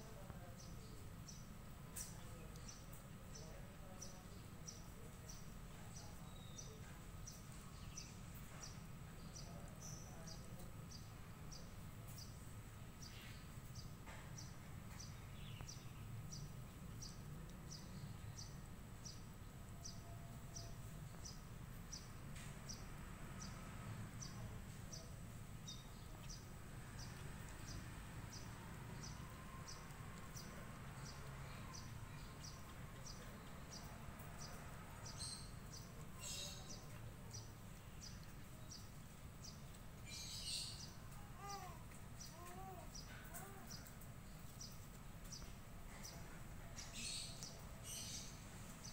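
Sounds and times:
outdoor background noise: 0:00.0 - 0:48.9.

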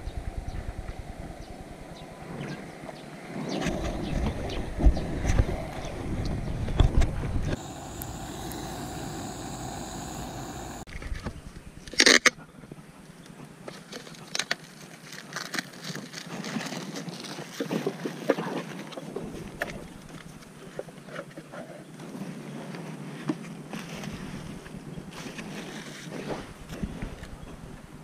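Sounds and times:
steady rushing noise: 0:07.5 - 0:10.9.

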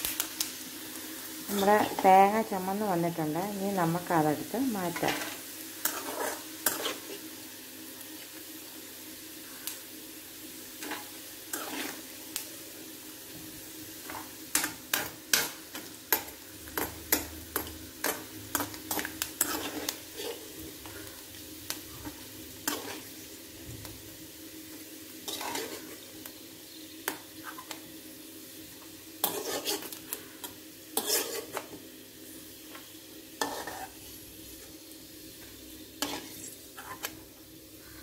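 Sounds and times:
frying sizzle: 0:00.0 - 0:38.0
spoon scraping metal pan: 0:04.9 - 0:07.2, 0:10.8 - 0:12.0, 0:14.1 - 0:21.0, 0:22.6 - 0:23.1, 0:25.2 - 0:26.0, 0:29.2 - 0:31.8, 0:33.4 - 0:34.0, 0:36.0 - 0:37.2.

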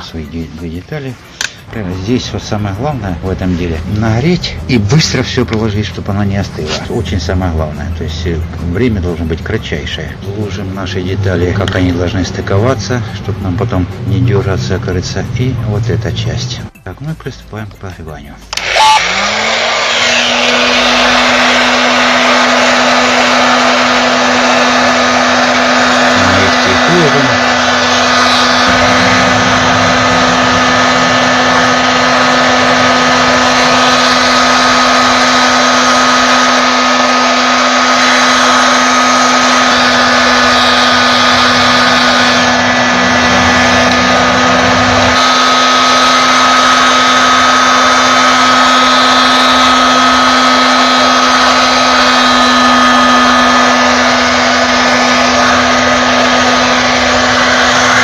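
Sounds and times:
hot air gun blowing: 0:01.2 - 0:01.7, 0:18.5 - 0:58.0.

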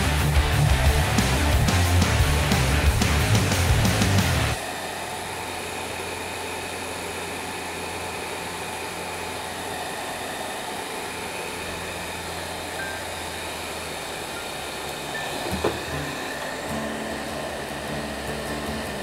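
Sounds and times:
heat gun blowing: 0:04.5 - 0:19.0.

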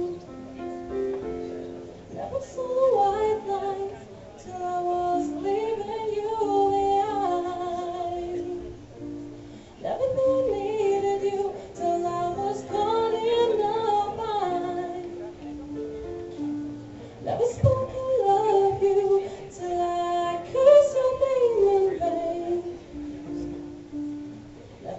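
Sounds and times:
held instrumental chords: 0:00.0 - 0:24.9
woman singing: 0:02.2 - 0:08.8, 0:09.8 - 0:15.3, 0:17.2 - 0:23.6.

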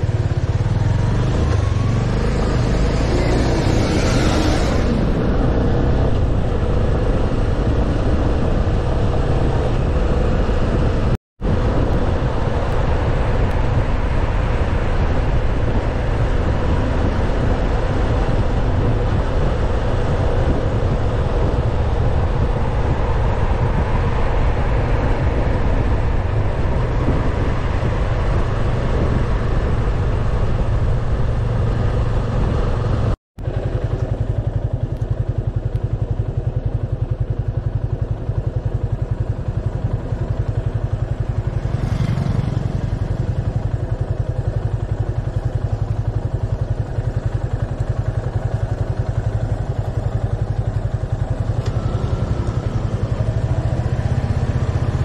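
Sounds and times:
motorcycle engine running: 0:00.0 - 0:55.0
wind rushing over microphone: 0:00.0 - 0:55.0
motorcycle engine idling: 0:30.4 - 0:55.0.

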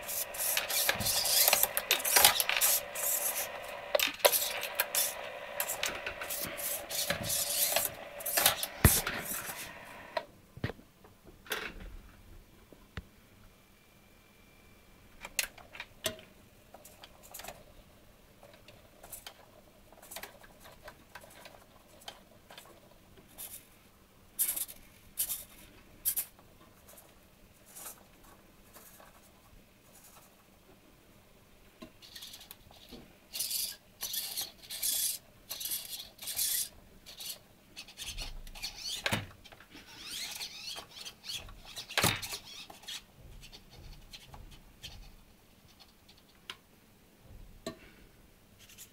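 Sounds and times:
servo motors whirring: 0:00.0 - 0:10.2.

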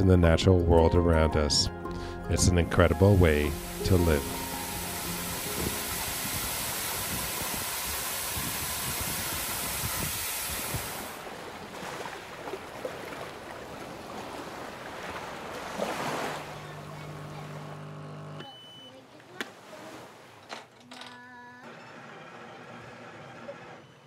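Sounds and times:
waterfall pouring: 0:03.0 - 0:11.9
sea wash: 0:03.0 - 0:20.5
wind: 0:05.6 - 0:17.8, 0:18.4 - 0:22.1.

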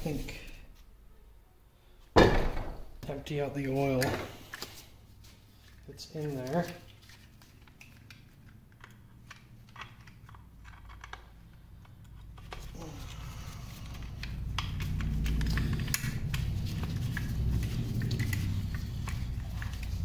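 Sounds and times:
hex key clicking and scraping: 0:13.9 - 0:20.0.

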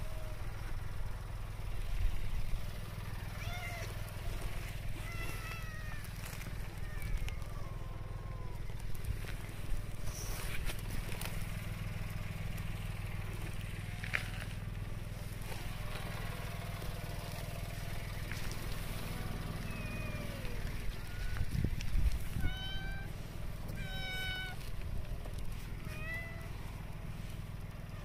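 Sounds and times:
faint cat meows: 0:03.4 - 0:04.0, 0:04.9 - 0:08.8, 0:19.6 - 0:21.6, 0:22.2 - 0:24.7, 0:25.8 - 0:26.6.

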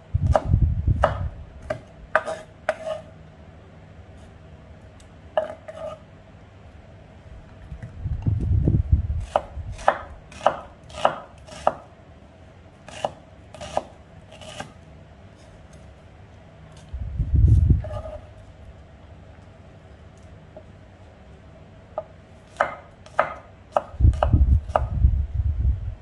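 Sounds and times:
knife chopping on wooden board: 0:00.2 - 0:03.0, 0:05.4 - 0:06.0, 0:09.2 - 0:11.9, 0:12.9 - 0:14.7, 0:17.8 - 0:18.2, 0:22.0 - 0:24.9.

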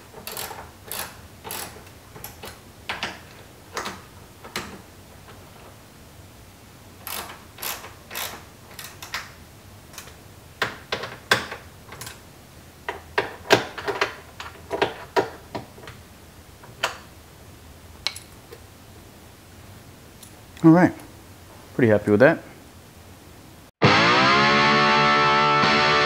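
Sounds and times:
socket ratchet clicking: 0:00.2 - 0:03.2, 0:07.0 - 0:09.3.

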